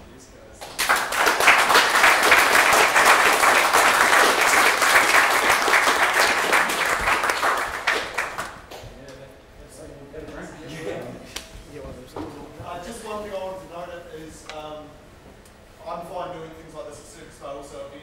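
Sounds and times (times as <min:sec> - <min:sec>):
audience applauding: 0:00.6 - 0:08.9.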